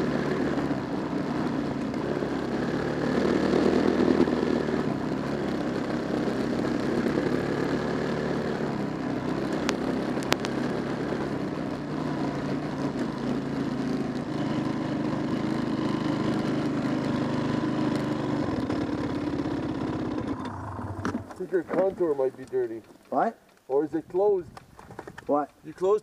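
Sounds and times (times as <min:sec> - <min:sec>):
car engine running: 0:08.5 - 0:23.1
sharp clicks: 0:09.6 - 0:10.6, 0:20.3 - 0:26.0.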